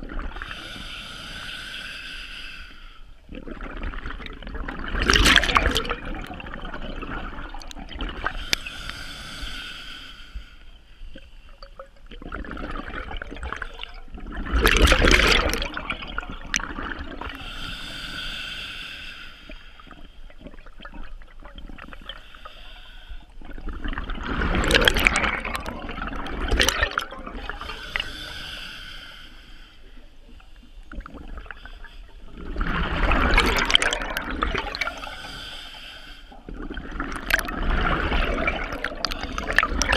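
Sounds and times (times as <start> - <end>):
regulator inhale hiss: 0.4 - 3.2, 8.4 - 11.6, 17.4 - 20.3, 22.0 - 23.4, 27.6 - 30.9, 34.9 - 36.5
exhaled bubbles rushing underwater: 3.3 - 8.6, 11.6 - 17.5, 19.8 - 22.2, 23.4 - 28.2, 30.9 - 31.7, 32.3 - 35.3, 36.4 - 39.9.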